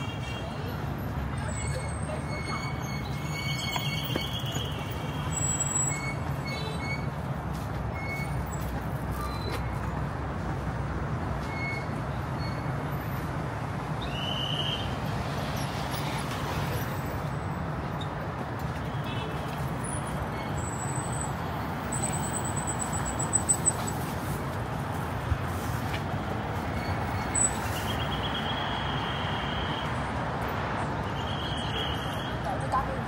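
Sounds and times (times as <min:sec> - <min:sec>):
city traffic rumble: 0:00.0 - 0:33.0
high squeaks: 0:01.4 - 0:07.2, 0:26.6 - 0:29.1.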